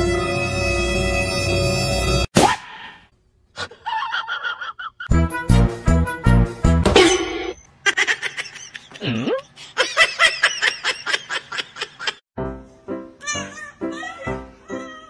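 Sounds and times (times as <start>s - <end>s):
high giggling: 3.6s - 5.1s, 7.8s - 12.2s.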